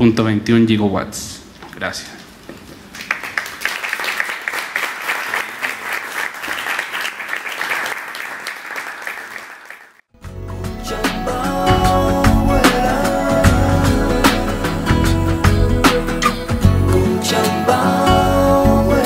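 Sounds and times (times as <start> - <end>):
audience clapping: 2.9 - 10.1
music: 10.2 - 19.0.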